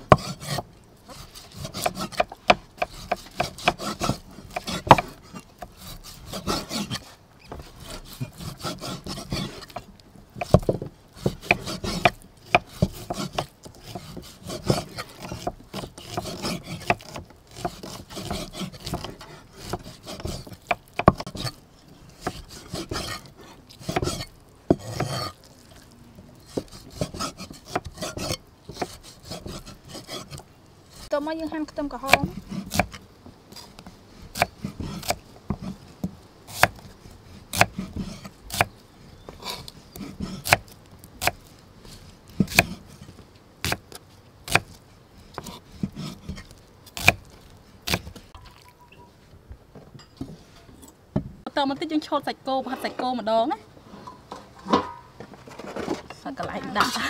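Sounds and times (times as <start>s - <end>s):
knife scraping through meat: 0.1s - 9.8s, 11.2s - 31.2s, 32.0s - 35.9s, 36.5s - 38.7s, 39.4s - 43.8s, 44.5s - 48.2s.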